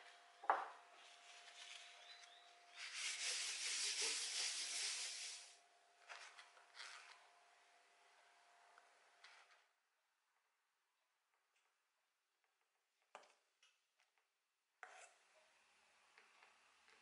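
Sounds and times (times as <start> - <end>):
paper towel scrubbing griddle: 2.7 - 5.5.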